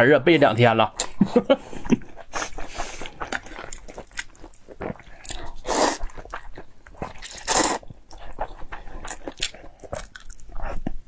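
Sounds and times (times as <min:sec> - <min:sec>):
chewing and lip-smacking: 0:01.8 - 0:11.0
slurping noodles: 0:02.2 - 0:10.0.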